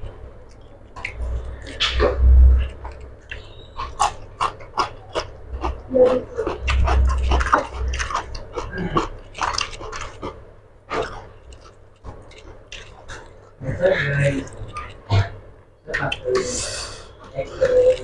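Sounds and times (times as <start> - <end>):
wet chewing smacks: 6.4 - 15.4.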